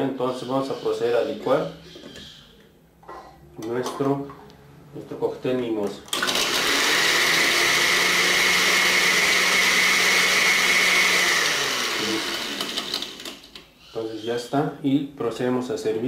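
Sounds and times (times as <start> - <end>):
blender motor running: 6.2 - 13.5
ice cubes blending: 6.2 - 13.5.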